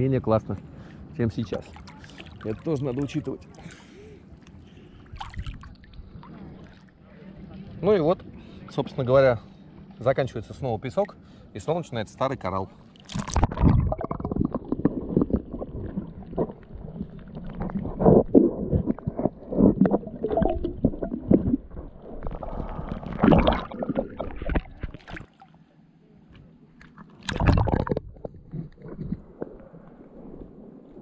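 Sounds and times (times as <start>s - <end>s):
water splashes: 0.8s - 3.8s, 5.0s - 7.1s, 12.9s - 25.6s, 26.8s - 31.0s
muffled water gurgling: 4.8s - 7.7s, 12.8s - 25.4s, 26.5s - 31.0s.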